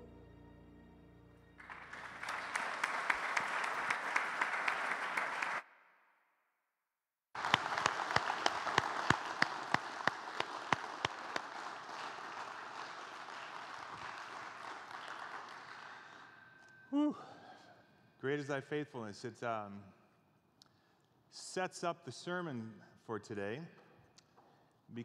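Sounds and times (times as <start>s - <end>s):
congregation applauding: 1.4s - 5.7s, 7.3s - 17.6s
sharp nearby claps: 1.6s - 5.7s, 7.4s - 16.8s.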